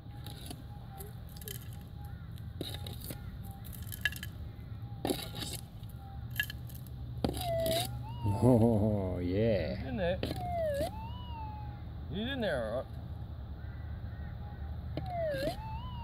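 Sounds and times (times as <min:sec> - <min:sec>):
dirt and gravel scraped in scoop: 0:00.2 - 0:01.8, 0:02.6 - 0:04.3, 0:05.0 - 0:08.0
metal detector rising signal tone: 0:07.4 - 0:09.0, 0:10.4 - 0:11.8, 0:15.0 - 0:16.0.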